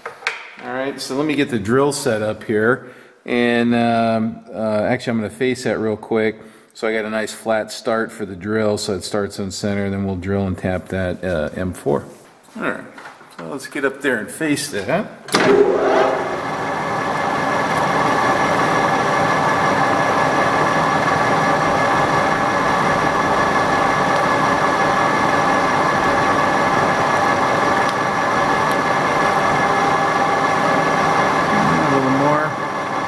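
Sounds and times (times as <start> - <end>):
metal lathe running: 15.4 - 33.0.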